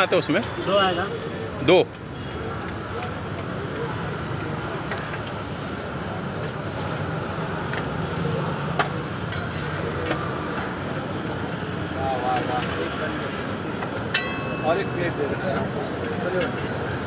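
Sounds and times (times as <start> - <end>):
road traffic: 0.0 - 17.0.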